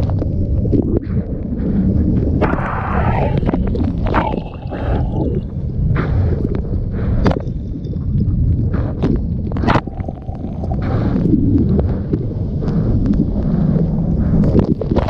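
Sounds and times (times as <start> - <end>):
water sloshing and splashing: 0.0 - 5.7
wind rumble on microphone: 0.0 - 15.0.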